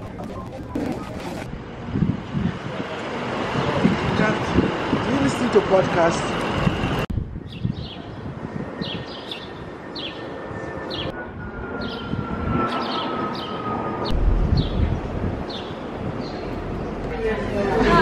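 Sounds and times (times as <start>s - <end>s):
low traffic rumble: 14.1s - 18.0s.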